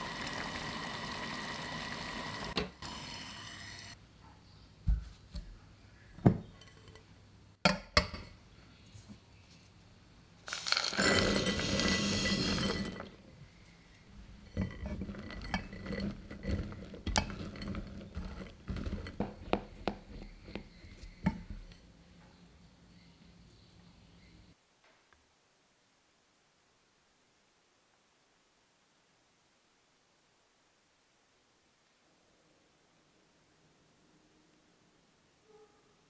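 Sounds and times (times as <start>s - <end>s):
spatula scraping glass bowl: 10.5s - 13.2s, 14.3s - 21.8s.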